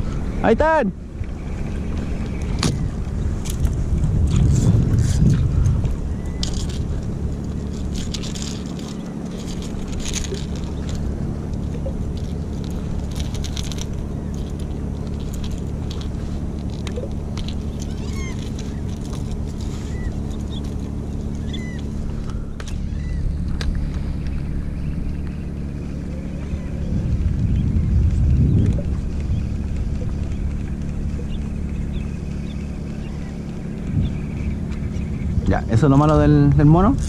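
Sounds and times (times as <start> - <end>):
boat motor running: 0.0 - 37.0
water splashing against hull: 0.0 - 37.0
high bird chirps: 21.4 - 23.3.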